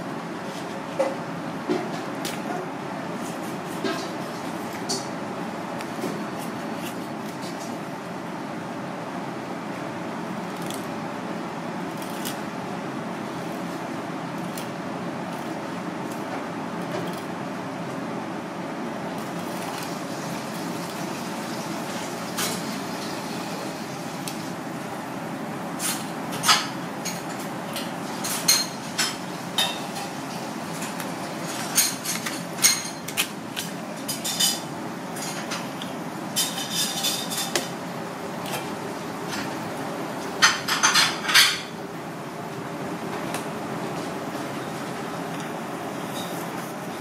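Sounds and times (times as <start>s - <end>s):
mechanical hum: 0.0s - 47.0s
kitchen background: 0.4s - 5.2s, 25.6s - 41.8s, 43.0s - 47.0s.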